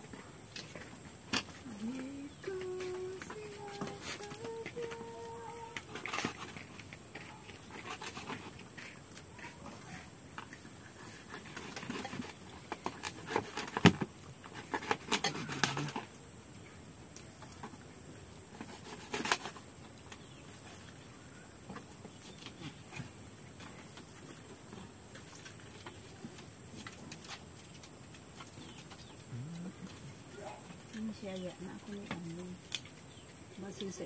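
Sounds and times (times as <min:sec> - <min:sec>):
faint high-pitched hum: 0:01.4 - 0:07.7.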